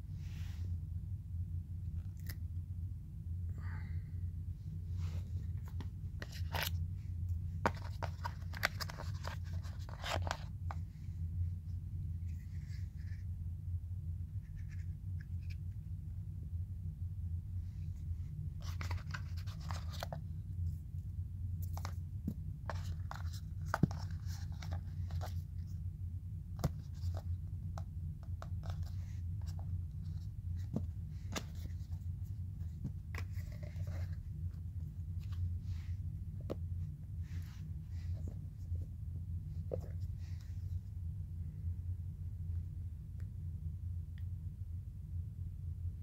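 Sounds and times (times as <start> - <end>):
steady low hum: 0.0 - 46.0
handling phone and cardboard packaging: 5.0 - 11.0, 18.6 - 20.5, 21.6 - 25.8, 26.5 - 38.8.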